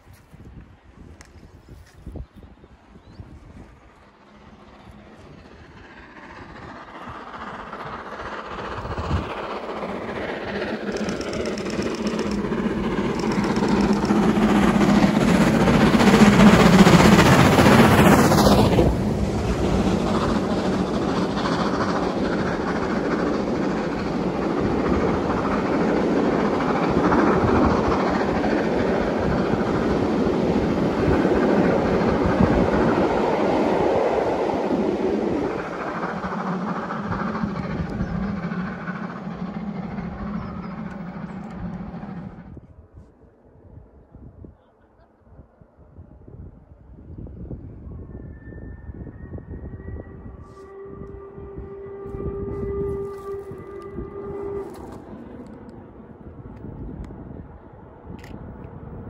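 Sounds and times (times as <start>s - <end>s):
train wheels rumbling on rails: 0.0s - 42.8s, 48.9s - 59.0s
steam locomotive exhaust: 3.2s - 42.6s, 47.7s - 57.1s.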